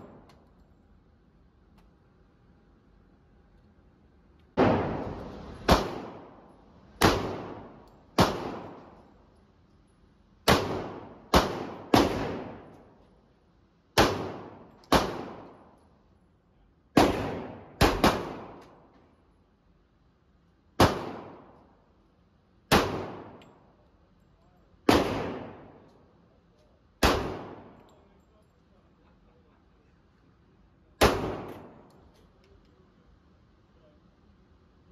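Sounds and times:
pistol shots echoing indoors: 4.6s - 9.2s, 10.4s - 12.9s, 14.0s - 15.8s, 16.9s - 18.9s, 20.8s - 21.8s, 22.7s - 23.6s, 24.8s - 26.0s, 27.0s - 28.0s, 31.0s - 32.0s.

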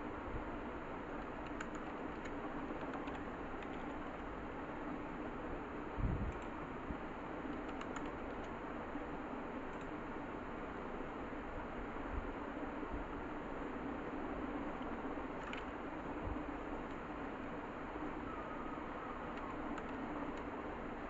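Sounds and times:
background hum and hiss: 0.0s - 21.0s
typing on a computer keyboard: 1.2s - 4.3s, 7.5s - 8.6s, 9.7s - 10.0s, 14.8s - 15.7s, 19.2s - 20.5s.

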